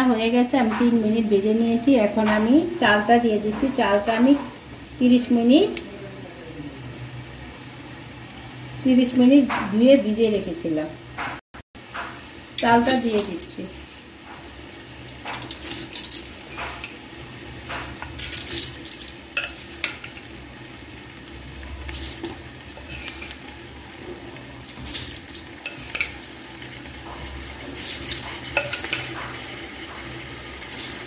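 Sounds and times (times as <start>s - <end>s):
food sizzling in oil: 0.0s - 31.0s
metal spoon clinking on pot: 18.2s - 20.2s, 24.7s - 26.2s, 27.8s - 29.4s.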